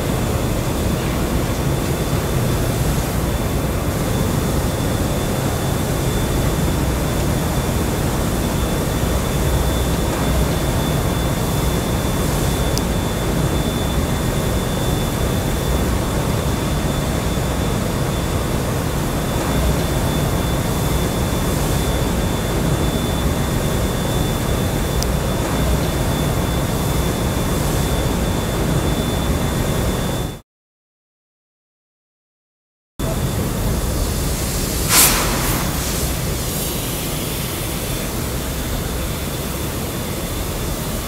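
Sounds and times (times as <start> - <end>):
high steady whine: 0.0 - 30.4, 33.0 - 41.0
dense rumbling noise: 34.4 - 37.4.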